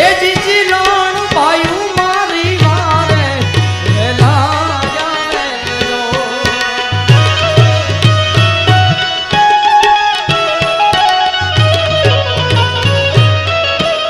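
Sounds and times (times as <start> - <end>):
man singing: 0.0 - 8.0
harmonium: 0.0 - 14.0
hand drum beat: 5.8 - 14.0.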